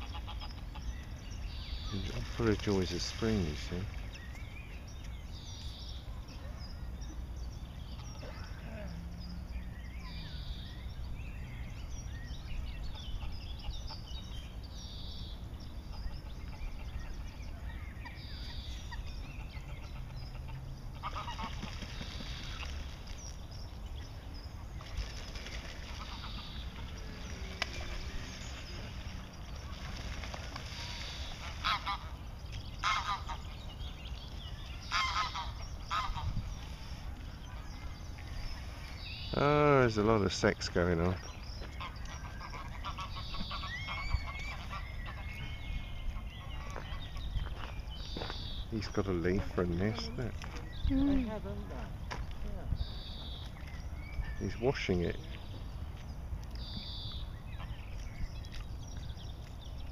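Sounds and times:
geese honking: 0.0s - 0.9s, 18.9s - 22.7s, 30.6s - 33.6s, 34.8s - 36.9s, 41.7s - 45.4s
small birds chirping: 0.0s - 59.9s
steady low rumble: 0.8s - 54.5s.

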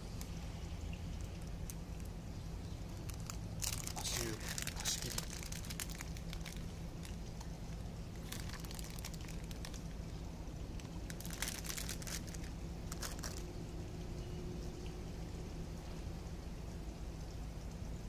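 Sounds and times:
low hum: 0.0s - 18.0s
plastic bag crinkling: 2.9s - 13.6s.

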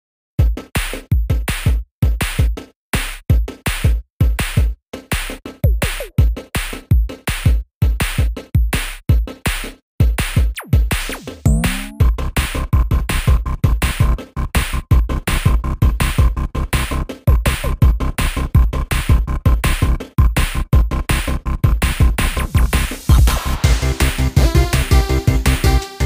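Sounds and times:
electronic drum machine beat: 5.6s - 9.3s, 11.5s - 12.1s, 21.7s - 26.0s.

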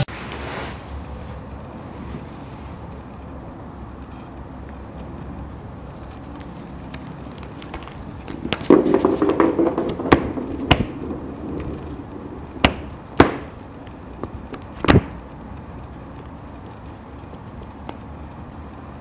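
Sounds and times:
rattling clatter: 8.3s - 13.2s
sharp knocks: 8.3s - 13.6s, 14.2s - 15.2s.

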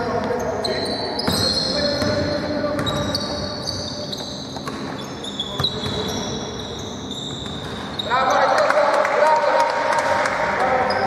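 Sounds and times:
shoes squeaking: 0.0s - 8.5s
basketball bouncing on court: 1.2s - 3.5s, 4.1s - 6.3s.

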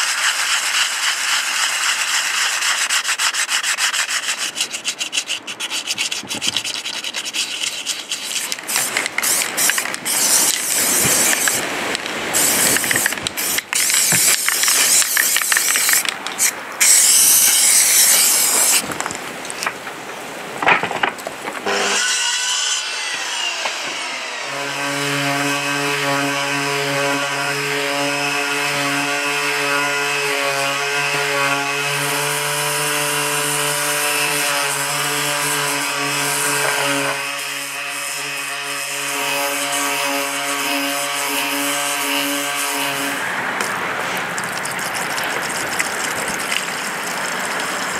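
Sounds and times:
hand scraping metal blades: 0.0s - 18.9s.

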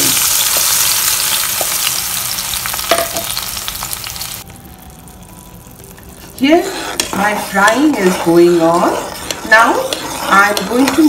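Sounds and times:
paste sizzling in hot oil: 0.0s - 4.4s, 6.2s - 11.0s.

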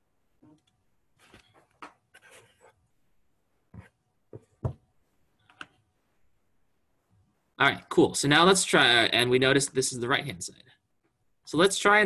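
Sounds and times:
stylus scratching on tablet: 2.1s - 2.8s.

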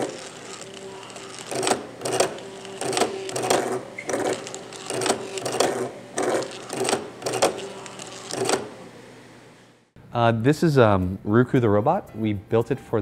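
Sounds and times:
stepper motor buzz: 0.0s - 8.8s.

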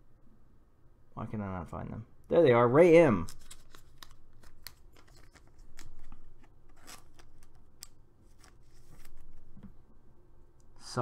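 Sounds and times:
plastic sleeve rustling: 3.2s - 9.7s.

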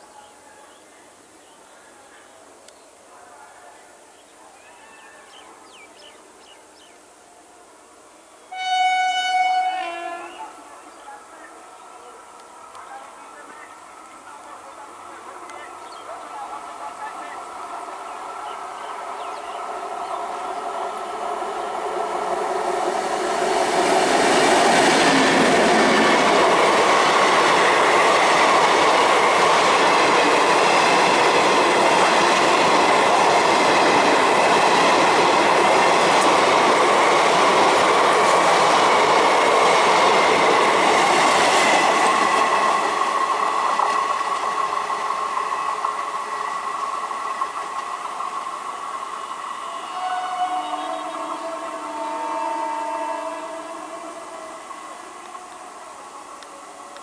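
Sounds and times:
locomotive whine: 11.5s - 57.0s.

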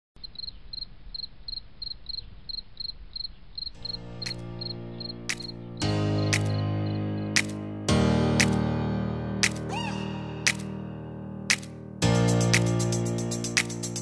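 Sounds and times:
high repeated chirps: 3.8s - 7.6s
music with sustained chords: 3.8s - 14.0s.

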